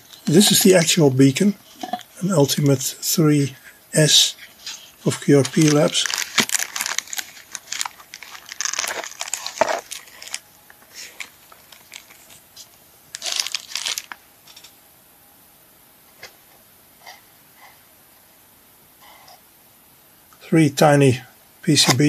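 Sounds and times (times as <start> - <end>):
plastic bags crinkling: 5.0 - 12.4, 13.1 - 14.7.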